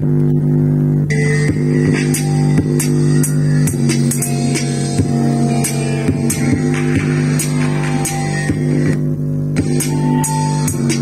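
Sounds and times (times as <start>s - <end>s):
music with a steady beat: 0.0s - 11.0s.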